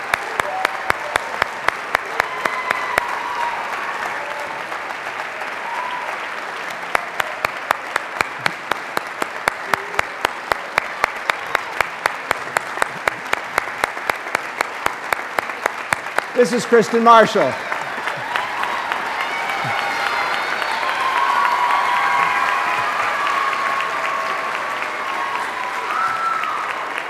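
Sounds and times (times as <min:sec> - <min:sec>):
audience applauding: 0:00.0 - 0:27.0
close sharp hand clapping: 0:00.0 - 0:27.0.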